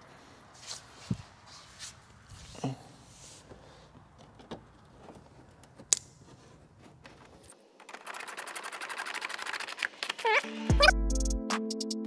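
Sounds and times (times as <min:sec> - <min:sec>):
background music: 0:10.4 - 0:12.0.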